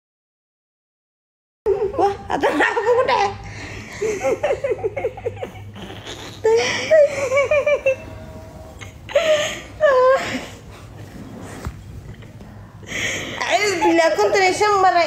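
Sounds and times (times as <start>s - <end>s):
woman laughing: 1.7s - 8.2s, 12.9s - 15.0s.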